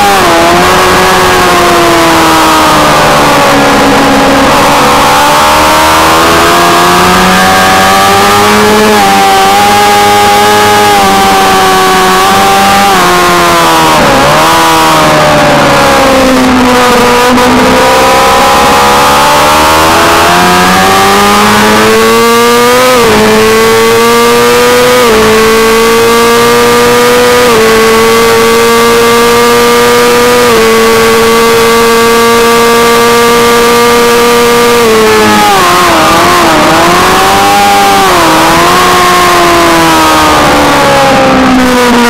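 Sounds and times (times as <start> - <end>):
heavy wind rush: 0.0 - 6.5
motorcycle engine revving: 0.0 - 42.0.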